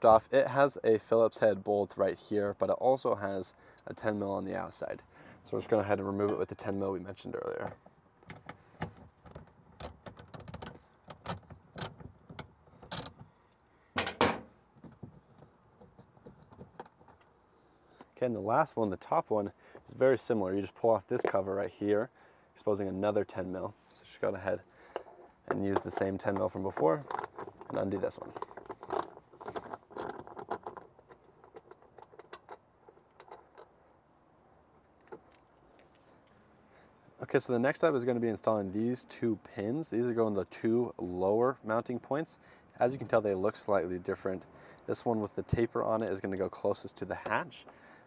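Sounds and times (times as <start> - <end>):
tool clicking undoing bolt: 9.8 - 13.2, 27.1 - 30.8.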